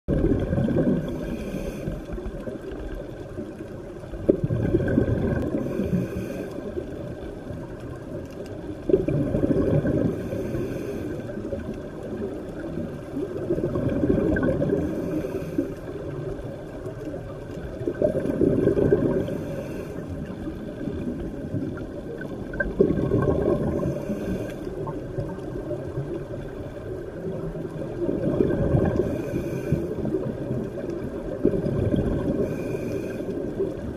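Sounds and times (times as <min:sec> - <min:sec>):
exhaled bubbles rushing: 0:00.1 - 0:06.2, 0:08.6 - 0:33.9
regulator inhale hiss: 0:01.0 - 0:02.5, 0:05.5 - 0:06.9, 0:10.1 - 0:11.6, 0:14.7 - 0:16.2, 0:19.2 - 0:21.0, 0:23.7 - 0:24.9, 0:29.0 - 0:30.2, 0:32.4 - 0:33.7.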